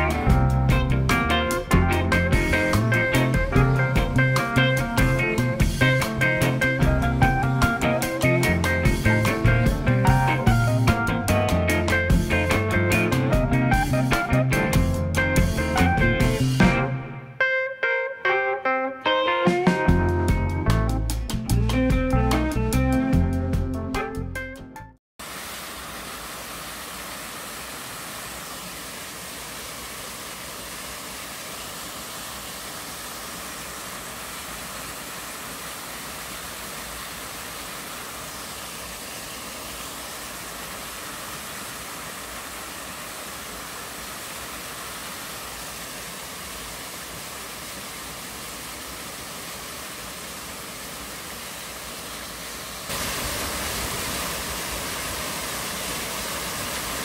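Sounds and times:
waterfall splashing into pool: 25.2s - 57.0s.

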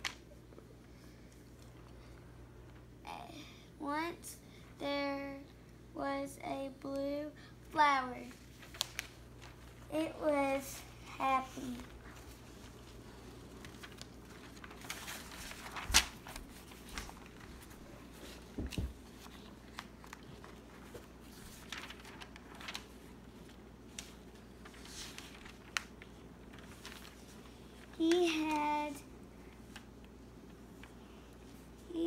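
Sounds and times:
child's voice: 3.1s - 8.4s, 9.9s - 12.0s, 28.0s - 29.1s
paper pages rustling: 8.2s - 32.0s.

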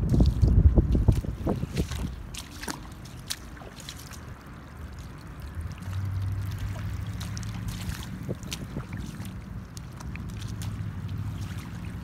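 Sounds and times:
footsteps splashing through shallow water: 0.0s - 12.0s
low steady engine hum: 0.0s - 12.0s.

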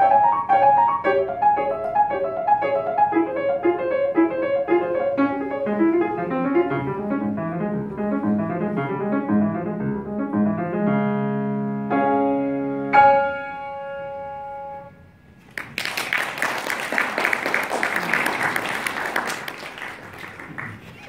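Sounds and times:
grand piano chords: 0.0s - 15.4s
audience applauding: 15.4s - 21.0s.

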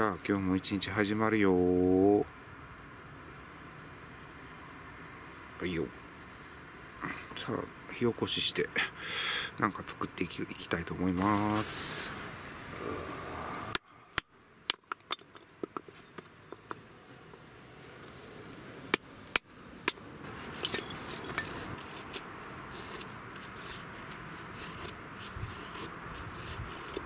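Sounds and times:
knife shaving wood: 21.6s - 27.0s.

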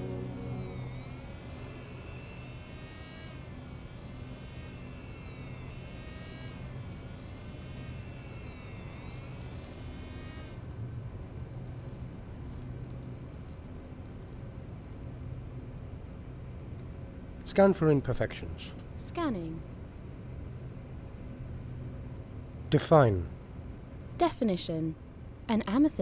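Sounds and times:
swooping high whirring tone: 0.0s - 10.0s
steady low hum: 0.0s - 12.2s.

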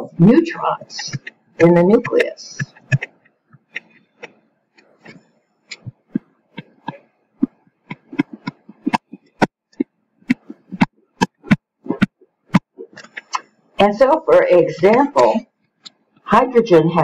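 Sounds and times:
stylus tapping on tablet screen: 0.8s - 13.6s.

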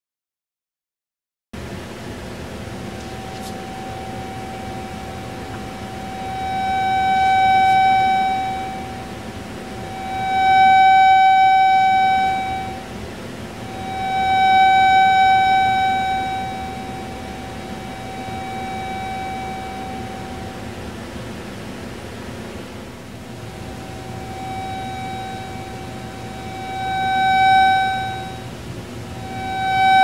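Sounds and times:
steady electronic tone: 2.6s - 21.7s, 23.3s - 30.0s.

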